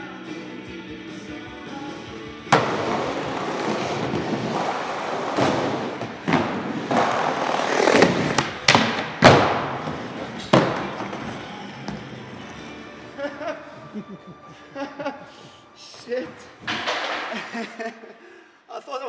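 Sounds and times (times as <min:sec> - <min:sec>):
skateboard wheels rolling on ramps: 0:01.5 - 0:13.4
skateboard popping and landing: 0:02.5 - 0:12.7, 0:16.6 - 0:17.4.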